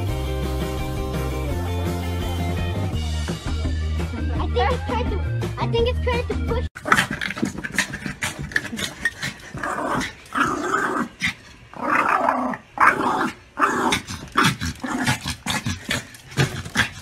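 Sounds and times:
small dog growling: 6.8 - 17.0.

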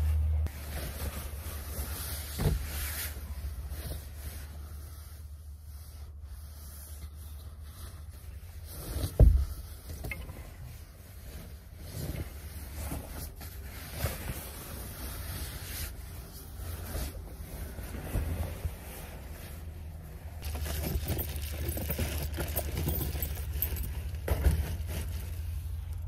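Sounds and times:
jackets and bedding rustling: 0.0 - 25.9
thump: 9.2 - 9.5.

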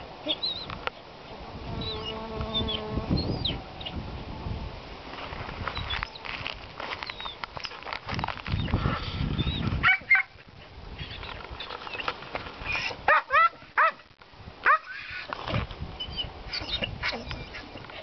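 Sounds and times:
small birds chirping: 0.2 - 4.0, 5.7 - 6.3, 7.0 - 7.8, 8.5 - 10.2, 10.9 - 13.0, 16.0 - 18.0
dog barking in short yaps: 9.8 - 10.3, 13.1 - 14.0, 14.6 - 15.0.

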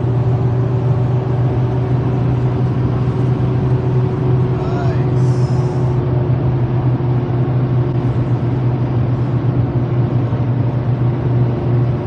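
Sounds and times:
car engine and tyre drone: 0.0 - 12.0
constant low hum: 0.0 - 12.0.

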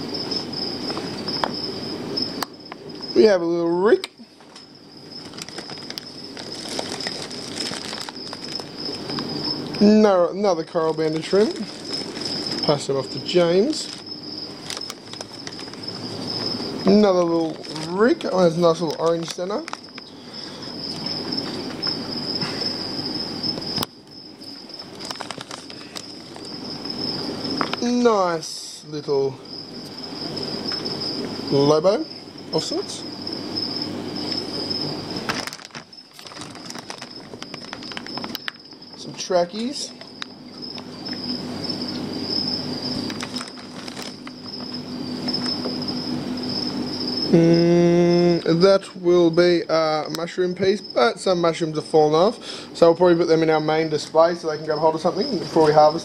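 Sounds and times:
plastic and newspaper crinkling: 5.2 - 9.3, 10.5 - 15.8, 17.2 - 20.1, 24.8 - 26.5, 35.2 - 39.0, 43.0 - 44.8
plastic and paper rustling: 5.2 - 9.3, 10.7 - 12.9, 13.7 - 15.8, 17.2 - 20.1, 24.8 - 26.5, 35.2 - 38.6, 43.0 - 45.5.

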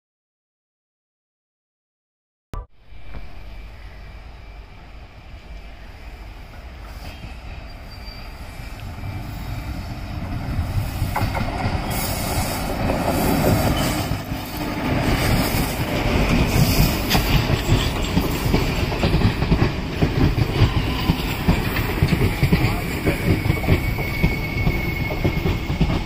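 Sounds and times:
electric locomotive passing: 2.8 - 26.0
wheels clattering over rail joints: 12.8 - 26.0.

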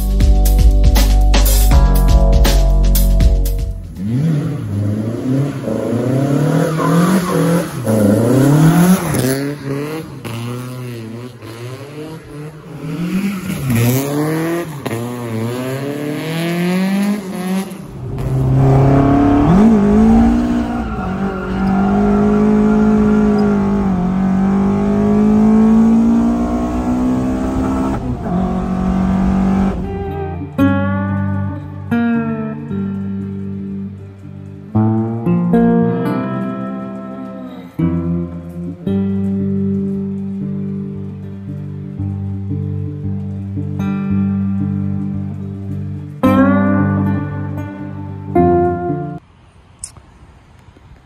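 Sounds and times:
car engine revving: 3.8 - 30.6.

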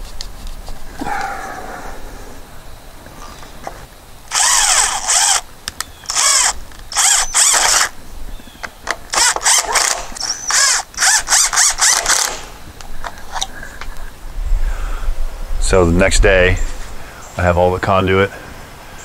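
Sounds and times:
cordless drill driving screws: 4.3 - 5.4, 6.0 - 8.0, 9.1 - 12.5.

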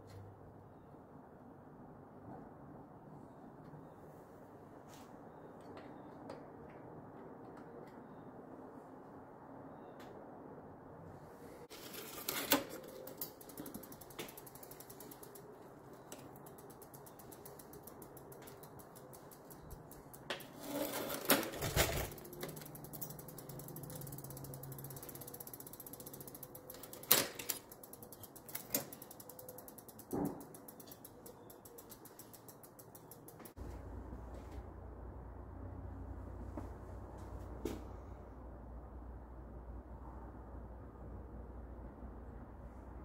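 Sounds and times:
bicycle chain running: 11.7 - 33.8
freewheel ticking: 11.9 - 33.8.

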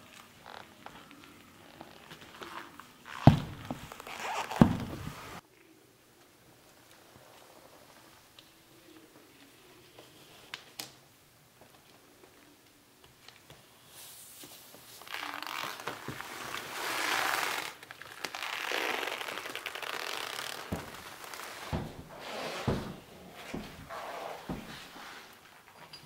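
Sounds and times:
leather rustling and creaking: 0.2 - 5.4, 15.0 - 25.6
heavy boot footfalls: 3.2 - 5.4, 20.7 - 24.9.

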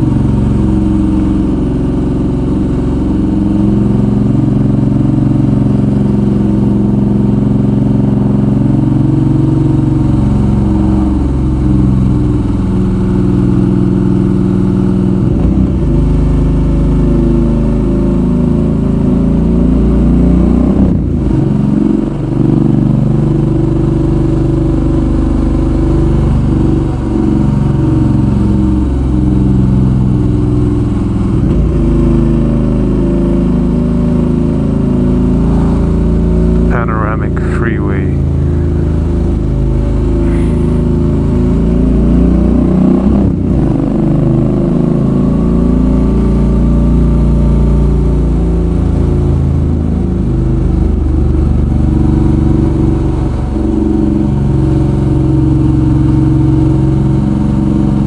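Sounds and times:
motorcycle engine revving: 0.0 - 37.1, 38.2 - 58.0.

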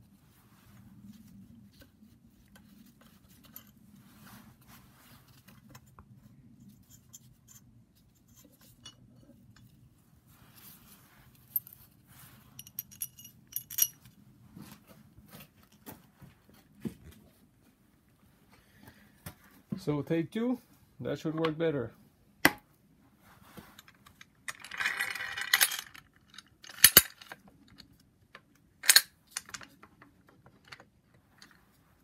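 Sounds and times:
metal tools clinking and scraping: 8.3 - 9.7, 12.5 - 14.1, 23.7 - 27.4.

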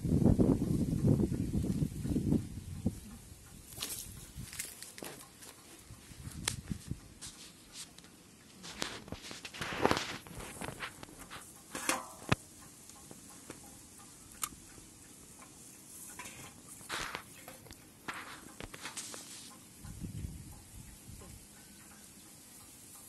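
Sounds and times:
rustling in grass: 1.5 - 19.8.

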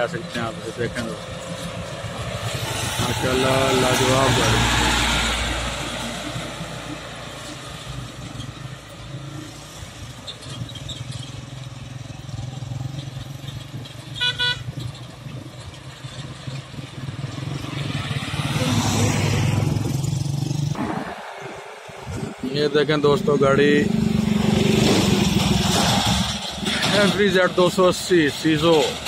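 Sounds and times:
van passing close by: 0.0 - 14.2, 14.9 - 29.0
road traffic passing: 0.0 - 29.0
vehicle horn toots: 14.2 - 14.7.

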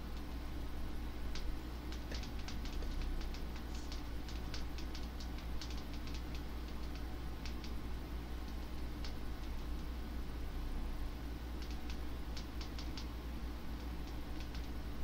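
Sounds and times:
steady low hum: 0.0 - 15.0
thumbs typing on touchscreen: 1.4 - 7.8, 11.6 - 13.1, 13.8 - 14.8.

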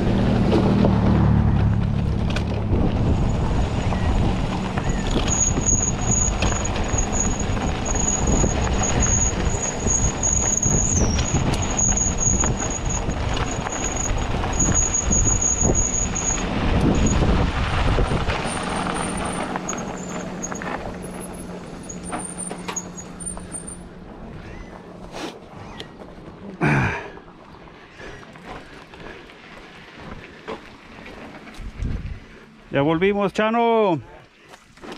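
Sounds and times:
wind buffeting: 0.0 - 21.5, 31.5 - 32.9
tyre rumble over gravel: 0.3 - 32.2
thin high squeal: 5.1 - 16.4.

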